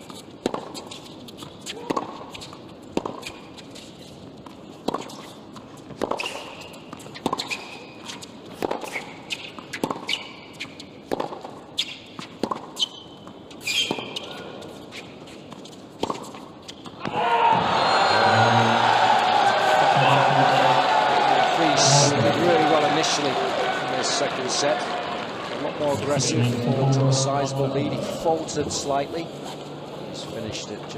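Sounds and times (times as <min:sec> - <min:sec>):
racquets striking tennis ball: 0:00.0 - 0:03.8, 0:04.8 - 0:17.2
shoes squeaking on court: 0:00.0 - 0:17.2
crowd applauding and cheering: 0:17.1 - 0:27.2.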